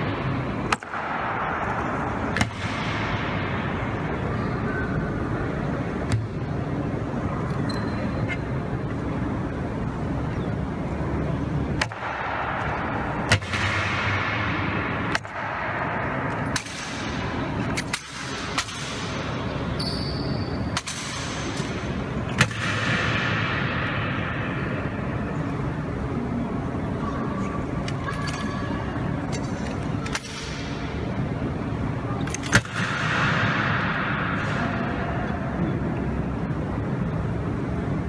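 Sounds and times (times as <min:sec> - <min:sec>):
background hubbub: 0:00.0 - 0:38.0.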